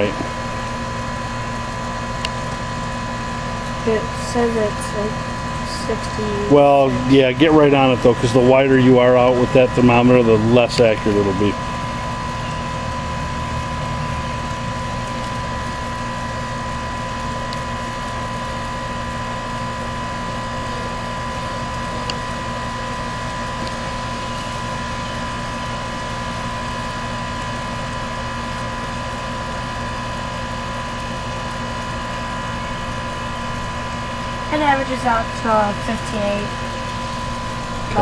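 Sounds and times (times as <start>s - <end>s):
air conditioner hum: 0.0s - 38.0s
steady high tone: 3.8s - 18.5s, 32.1s - 38.0s.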